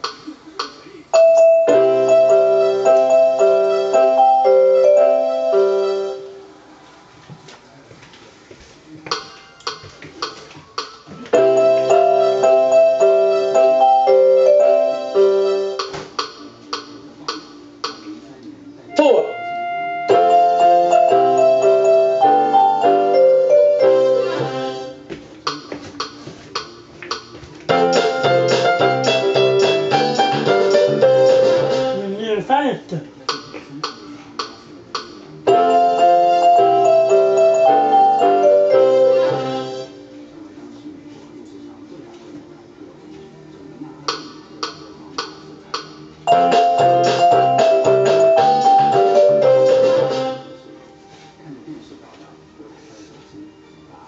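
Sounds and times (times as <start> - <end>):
electronic keyboard playing melody: 1.1 - 6.5, 11.3 - 16.4, 18.9 - 25.1, 27.7 - 32.2, 35.4 - 40.2, 46.2 - 50.9
drum and bass accompaniment: 25.5 - 32.0.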